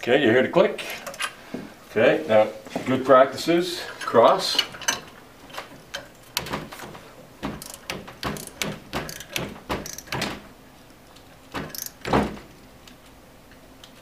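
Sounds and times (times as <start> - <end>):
torque wrench ratchet clicking: 7.6 - 10.2, 11.7 - 12.1.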